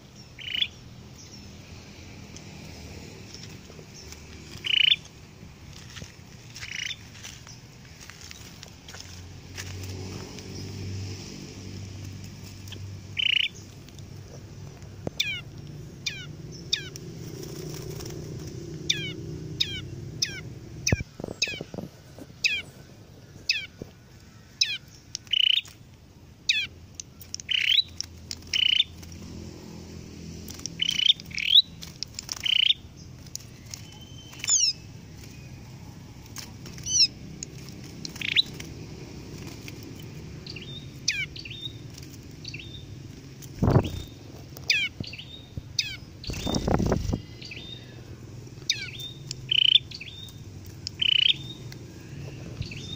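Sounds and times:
small songbirds chirping: 0.0 - 52.9.

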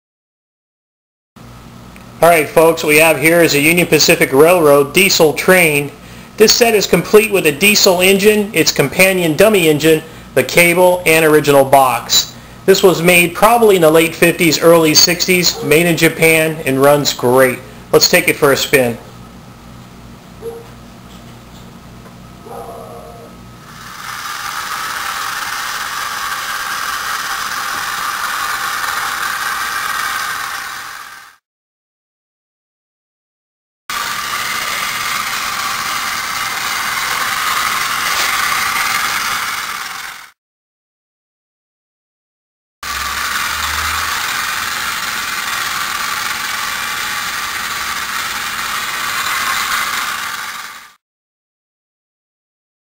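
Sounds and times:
toy train motor whirring: 13.5 - 16.8, 23.6 - 31.4, 33.9 - 40.4, 42.8 - 51.0.

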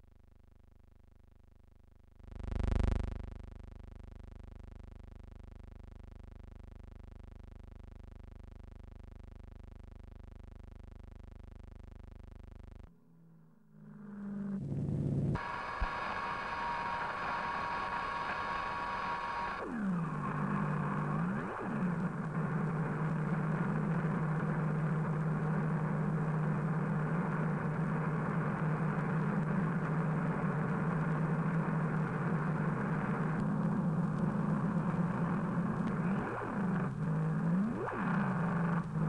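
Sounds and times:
high whine: 2.3 - 3.5, 12.7 - 39.0
low mechanical drone: 13.6 - 27.4.

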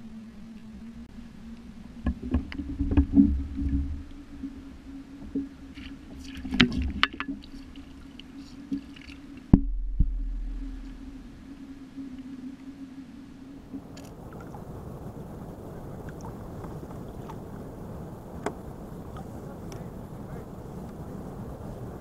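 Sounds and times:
low muffled rumble: 0.0 - 12.7, 13.3 - 22.0
low hum: 0.0 - 22.0
heavy thump: 9.5 - 11.3.

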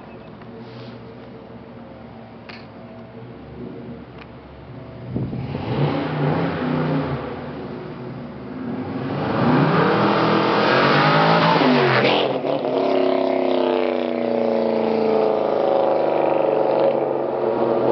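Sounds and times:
car engine accelerating past: 5.2 - 7.6, 8.6 - 17.9.

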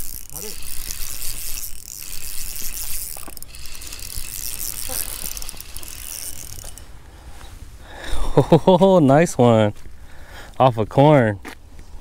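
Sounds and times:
fishing reel clicking whir: 0.0 - 6.9.

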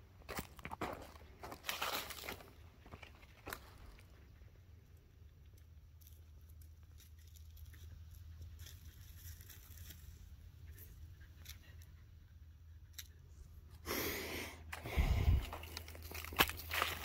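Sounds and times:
crunching footsteps: 0.2 - 4.2, 14.7 - 17.0.

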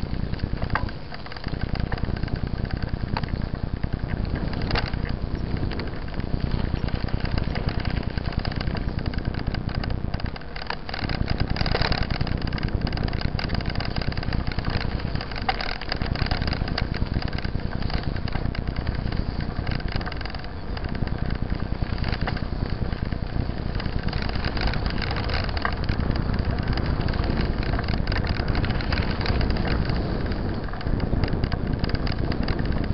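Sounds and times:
bike rattling over gravel: 0.0 - 32.9.

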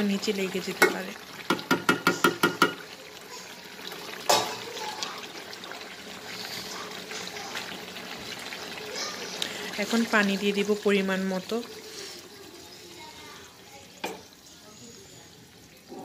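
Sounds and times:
curry sizzling and bubbling: 0.0 - 16.0
spatula knocking against pan: 0.8 - 2.8
spatula scraping a pan: 11.7 - 13.3.

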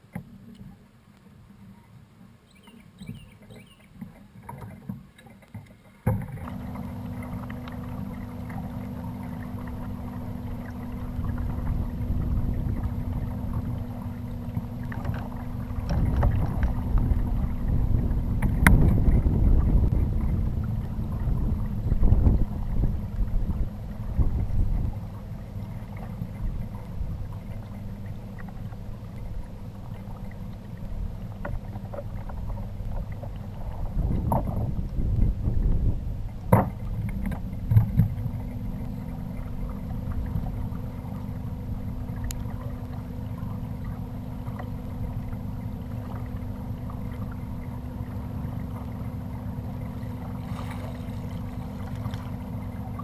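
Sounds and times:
faint steady hum: 0.0 - 53.0
water rushing: 0.0 - 53.0
gear knocking on hull: 6.0 - 25.1, 25.7 - 42.8
wind on microphone: 6.2 - 29.6, 30.8 - 47.3.

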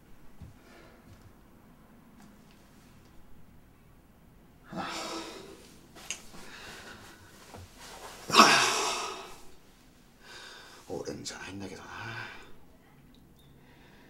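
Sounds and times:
man exhaling loudly: 4.7 - 5.6, 8.3 - 9.4.

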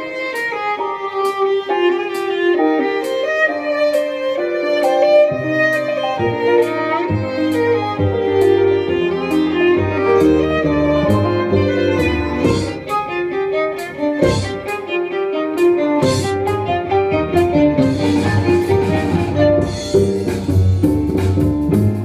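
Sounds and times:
violin bowing a quick melody: 0.0 - 21.8
plucked double bass: 5.6 - 14.8, 15.6 - 22.0.

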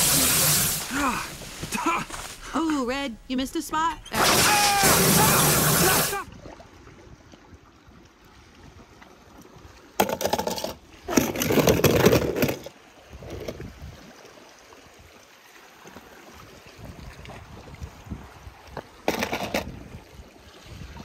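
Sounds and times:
faint sea wash: 0.0 - 9.8.

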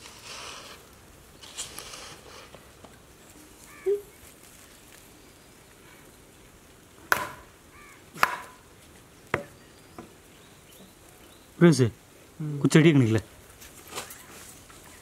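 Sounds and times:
sharp chopping knocks: 7.1 - 7.4, 8.2 - 8.6.

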